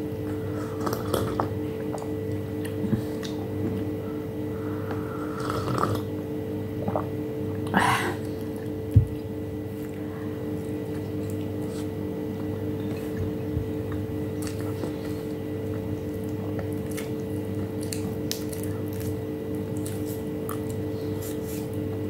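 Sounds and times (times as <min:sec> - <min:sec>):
steady low hum: 0:00.0 - 0:22.0
person slurping coffee: 0:05.2 - 0:06.1.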